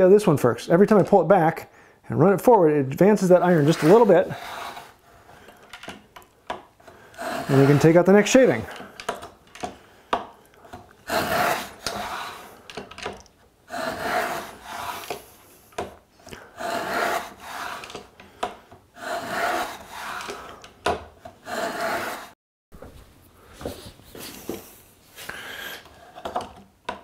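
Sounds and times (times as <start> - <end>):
plane rasping through wood: 3.2 - 5.0, 6.9 - 8.8, 11.0 - 12.6, 13.7 - 15.4, 16.4 - 18.2, 19.0 - 20.6, 21.3 - 22.4.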